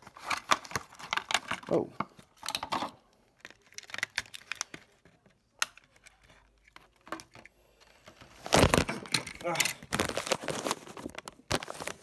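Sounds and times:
plastic packaging crinkling: 3.4s - 5.2s, 8.1s - 12.0s.

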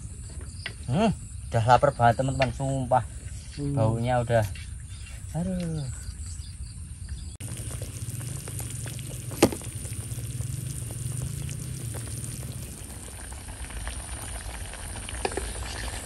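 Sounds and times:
stew boiling in a wok: 7.4s - 16.0s.

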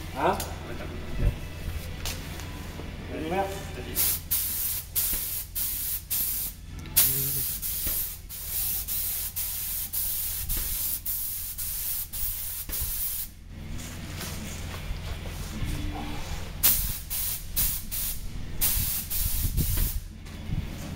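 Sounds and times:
low steady hum: 0.0s - 20.9s
spray gun hissing: 4.0s - 13.3s, 16.6s - 20.0s.

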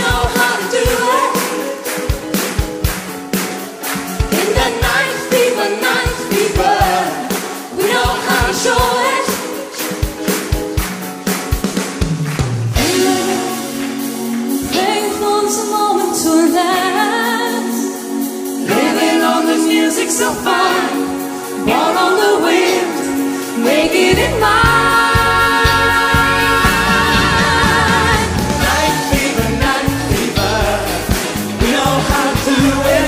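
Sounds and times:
woman singing lead: 0.0s - 2.3s, 4.2s - 10.3s, 12.8s - 33.0s
backing singers in harmony: 0.0s - 2.5s, 3.6s - 10.3s, 12.8s - 33.0s
bass: 0.0s - 9.4s, 10.0s - 16.9s, 23.0s - 33.0s
drum beat: 6.1s - 14.8s, 24.1s - 33.0s.

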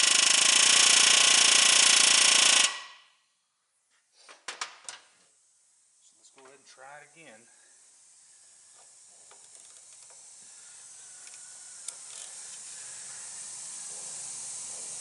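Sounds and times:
steady hiss: 4.1s - 15.0s.

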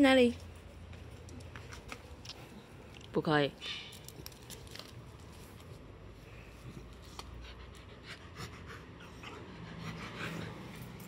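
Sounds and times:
dog panting and sniffing: 6.5s - 11.0s.

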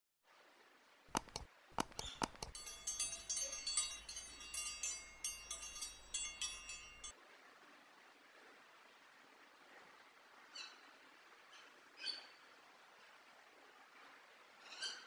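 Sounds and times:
sharp mouse clicks: 1.2s - 2.6s
notification bell ringing: 1.2s - 7.1s.

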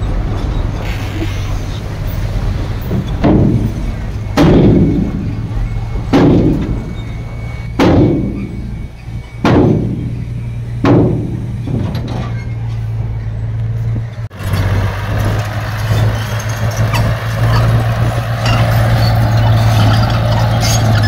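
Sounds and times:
heavy diesel machinery running: 0.0s - 21.0s
heavy thuds: 2.4s - 12.9s.

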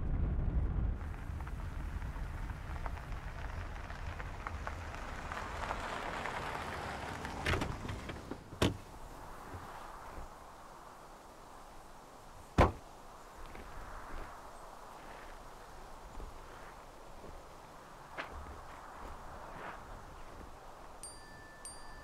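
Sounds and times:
tyres crunching over gravel: 1.5s - 10.6s, 12.5s - 21.0s.

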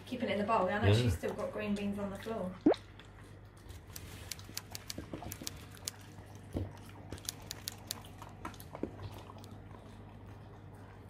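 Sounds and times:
puppy chewing food: 2.8s - 11.0s.

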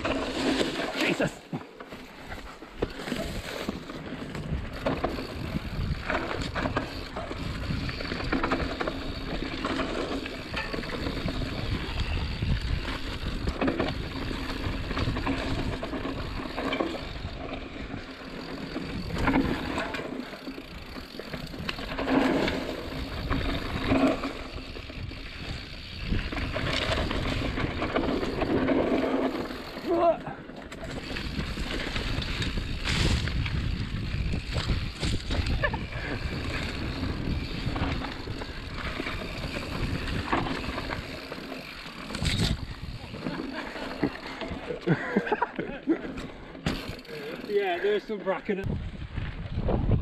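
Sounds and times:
bike tyres rumbling on dirt: 0.0s - 50.0s
bike knocking over bumps: 46.6s - 47.1s.

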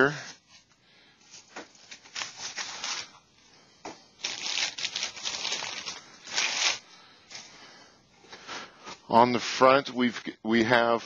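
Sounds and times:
plastic packaging crinkling: 4.2s - 6.8s.

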